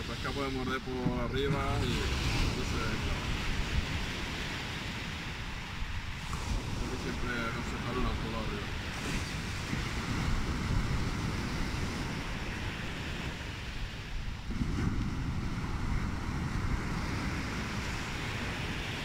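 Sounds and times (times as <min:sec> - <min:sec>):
sea waves breaking: 0:00.0 - 0:19.0
wind rumbling on microphone: 0:00.0 - 0:19.0.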